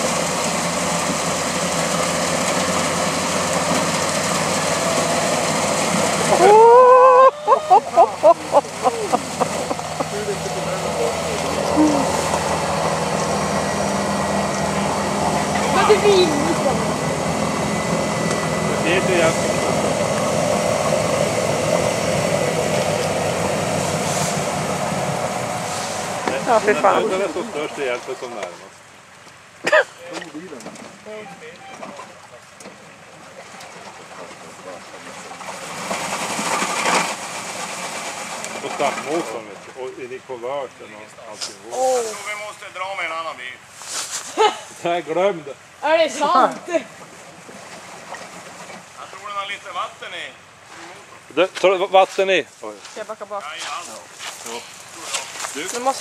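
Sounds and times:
truck engine idling: 0:00.0 - 0:28.2
wheels spinning in mud: 0:00.0 - 0:28.5, 0:30.4 - 0:40.2, 0:46.3 - 0:50.0.

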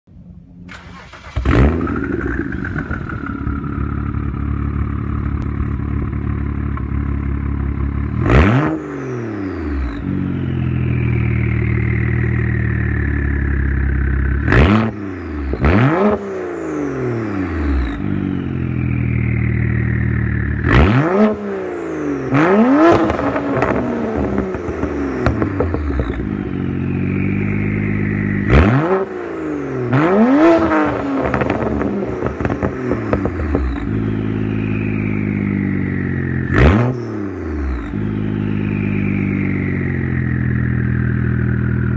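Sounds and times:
car engine idling: 0:00.1 - 0:41.9
engine revving: 0:00.6 - 0:41.9
turbocharger whistle: 0:14.5 - 0:41.6.

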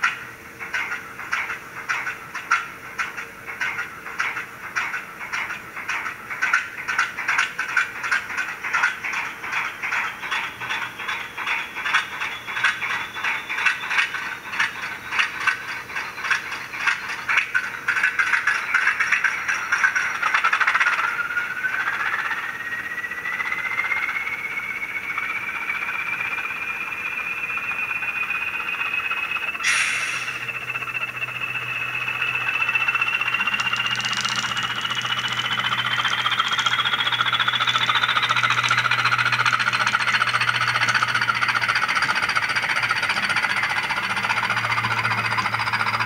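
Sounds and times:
diesel engine knocking unevenly: 0:00.0 - 0:46.0
rising whine: 0:19.6 - 0:46.0.

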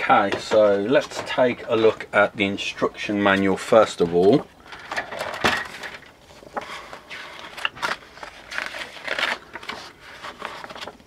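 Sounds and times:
paper rustling: 0:04.7 - 0:11.0.

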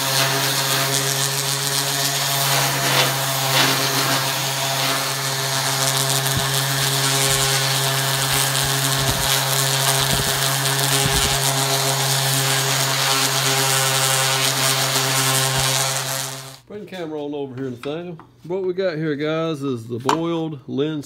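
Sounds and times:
orbital sander on wood: 0:00.0 - 0:16.7.

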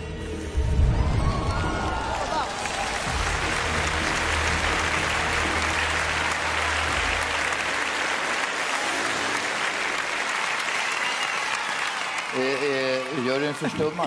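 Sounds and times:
low sustained backing music: 0:00.0 - 0:10.0
audience applauding: 0:00.8 - 0:14.0.

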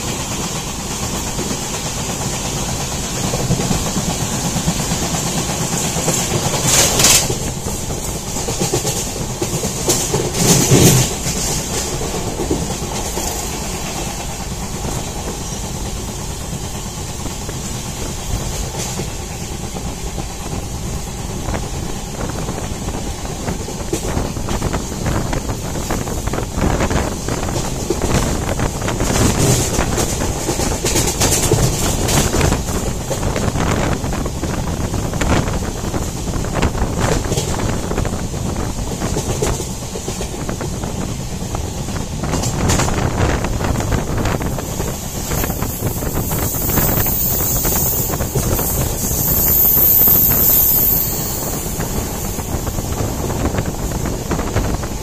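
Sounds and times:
wheels clattering over rails: 0:00.0 - 0:20.7, 0:23.4 - 0:55.0
train rumble: 0:00.0 - 0:55.0
wind buffeting microphone: 0:00.0 - 0:55.0
faint high-pitched squeal: 0:44.5 - 0:53.3.

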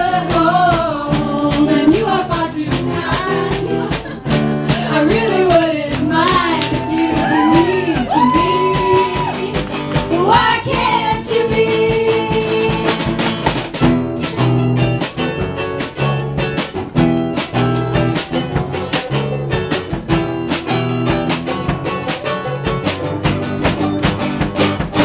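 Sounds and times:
acoustic folk band playing: 0:00.0 - 0:25.0
voices singing long notes: 0:04.8 - 0:12.8.

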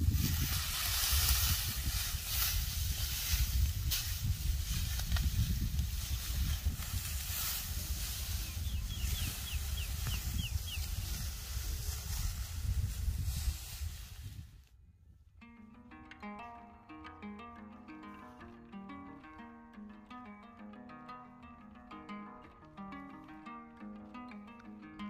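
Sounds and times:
dry straw rustling and crackling: 0:00.0 - 0:14.6
wind rumble on microphone: 0:00.0 - 0:15.4.

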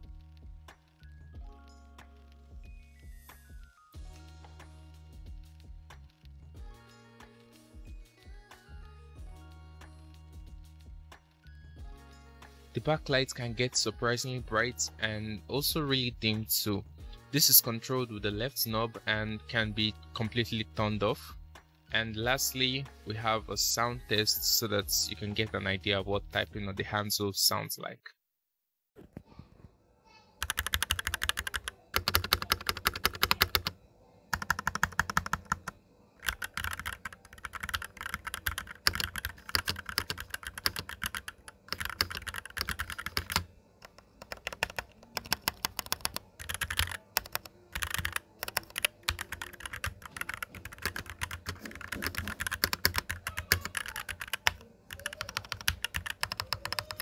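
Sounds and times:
keyboard typing: 0:30.4 - 0:57.0.

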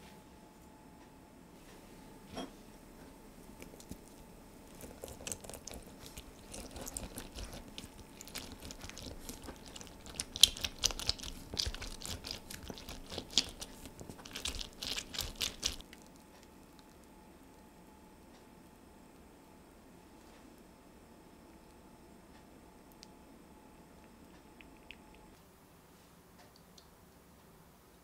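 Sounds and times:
lemon squelching on a juicer: 0:03.5 - 0:16.2.

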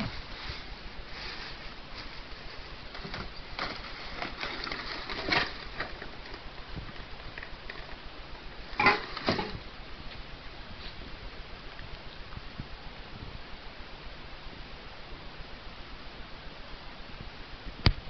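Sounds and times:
plastic bag rustling: 0:00.0 - 0:08.0, 0:08.7 - 0:09.6
cans and bottles clinking: 0:08.8 - 0:09.6.

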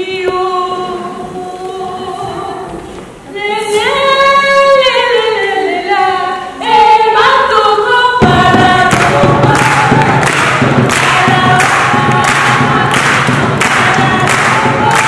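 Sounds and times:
women singing together: 0:00.0 - 0:15.0
drums beating steady rhythm: 0:08.2 - 0:15.0.

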